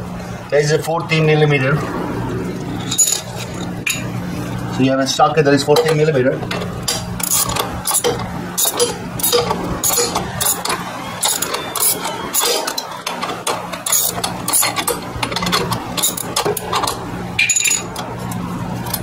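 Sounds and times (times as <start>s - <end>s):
hand ratchet clicking: 5.9s - 18.1s.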